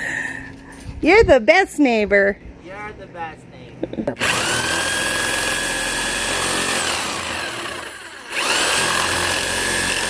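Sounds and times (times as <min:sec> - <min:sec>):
power saw cutting wire: 0:04.2 - 0:10.0.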